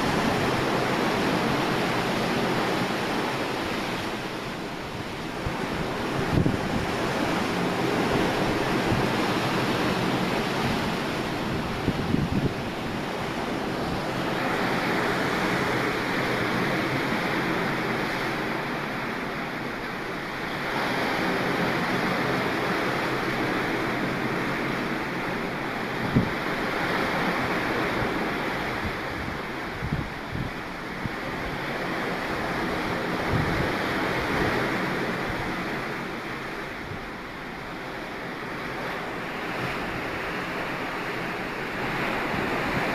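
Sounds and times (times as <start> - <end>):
wind buffeting microphone: 0.0 - 17.4, 25.8 - 37.3
waves breaking against hull: 0.0 - 42.9.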